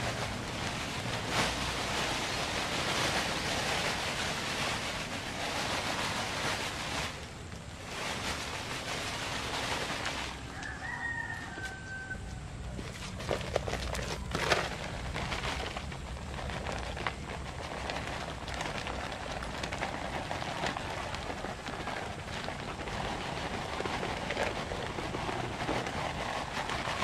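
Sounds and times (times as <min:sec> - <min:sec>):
plastic sack rustling: 0:00.0 - 0:27.0
rooster crowing: 0:10.4 - 0:12.5
fertilizer pouring onto soil: 0:12.6 - 0:27.0.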